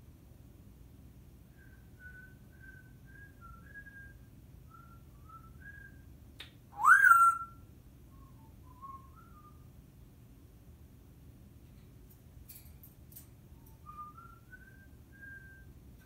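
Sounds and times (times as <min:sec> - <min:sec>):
parrot whistling: 0:06.8 - 0:07.6.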